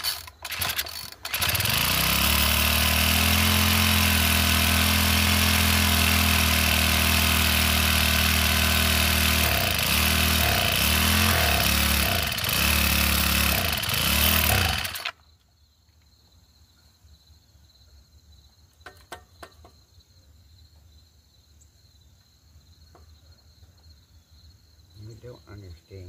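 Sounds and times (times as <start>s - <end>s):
small engine running: 0.0s - 15.2s
crickets chirping: 15.1s - 26.0s.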